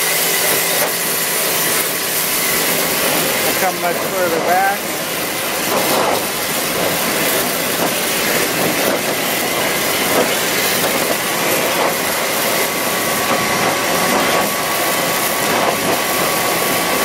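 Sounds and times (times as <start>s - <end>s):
pressure washer whine: 0.0s - 17.0s
water jet hissing on wood: 0.0s - 17.0s.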